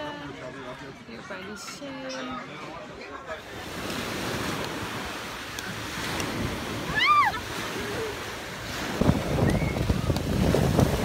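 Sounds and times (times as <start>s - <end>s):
small waves washing on beach: 3.4s - 11.0s
wind buffeting microphone: 3.6s - 11.0s.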